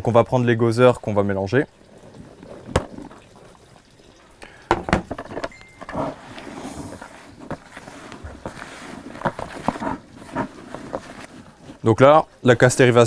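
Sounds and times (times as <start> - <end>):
sharp knocks on plastic: 4.7 - 5.2
maggots rustling in sawdust: 6.0 - 13.0.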